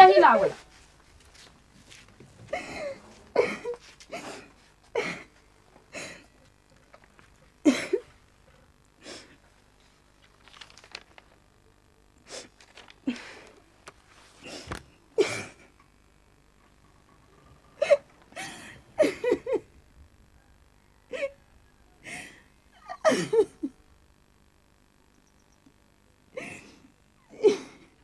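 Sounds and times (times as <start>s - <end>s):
person sobbing: 2.4s - 6.4s, 7.6s - 8.2s, 12.2s - 13.7s, 14.4s - 15.8s, 17.8s - 19.8s, 21.1s - 21.4s, 22.0s - 23.8s, 26.4s - 28.0s.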